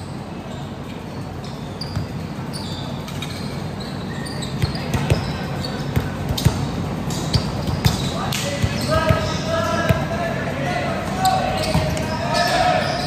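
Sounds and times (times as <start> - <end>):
sneaker squeaks on floor: 0.1 - 9.5, 11.2 - 13.0.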